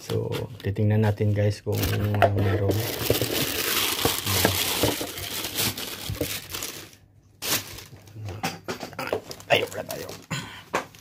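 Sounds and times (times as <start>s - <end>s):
packing material crinkling: 1.7s - 8.2s, 9.0s - 11.0s.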